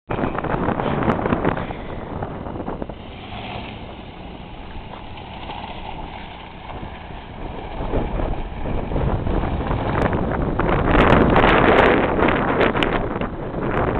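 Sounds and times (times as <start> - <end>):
tyres spinning on dirt: 0.1 - 13.9
wind buffeting microphone: 0.1 - 13.9
engine revving: 0.3 - 13.9.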